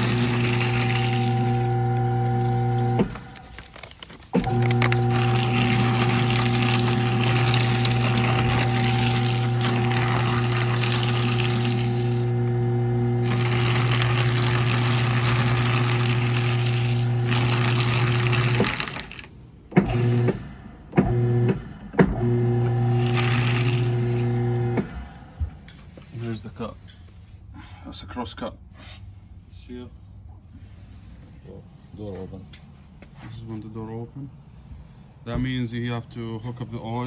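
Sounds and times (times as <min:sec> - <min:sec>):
cutters crunching paper: 0:00.0 - 0:12.4, 0:13.0 - 0:19.3, 0:22.8 - 0:24.8
paper shredder motor humming: 0:00.0 - 0:25.4.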